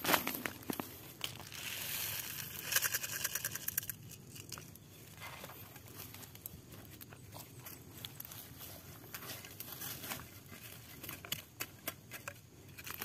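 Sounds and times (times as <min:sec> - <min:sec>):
pellets pouring rattling hiss: 0:01.4 - 0:03.8.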